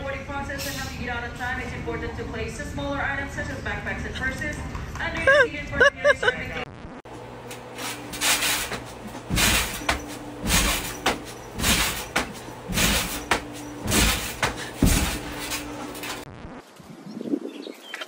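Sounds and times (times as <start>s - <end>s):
steady low hum: 0.0s - 16.5s
trampoline mat and springs thudding: 7.6s - 16.3s.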